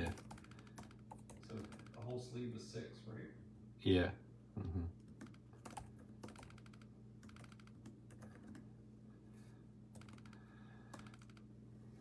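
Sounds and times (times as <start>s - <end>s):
typing on computer keyboard: 0.0s - 2.2s, 5.1s - 8.7s, 9.9s - 11.5s
steady low hum: 0.0s - 12.0s.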